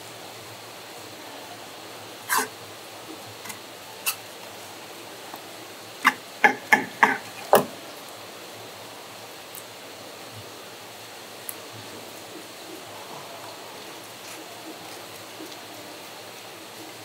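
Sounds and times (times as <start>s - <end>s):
steady hiss: 0.0s - 17.0s
sharp knocks: 6.0s - 7.7s.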